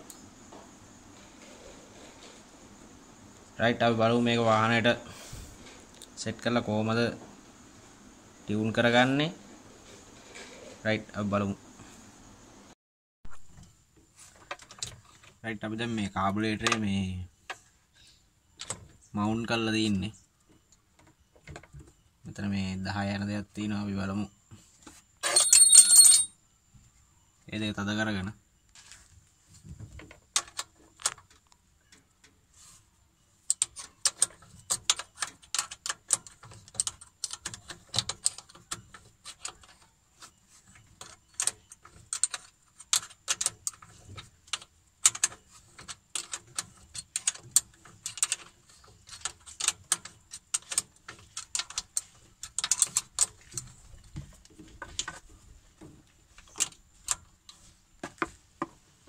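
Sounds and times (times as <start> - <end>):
spanner clicking on metal nuts: 33.5 - 39.8, 40.7 - 53.7.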